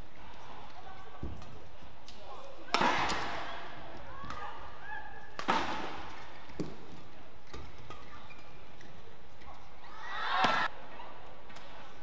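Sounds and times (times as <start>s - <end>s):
racket striking shuttlecock: 5.4s - 6.7s
crowd shouting and cheering: 9.8s - 10.8s.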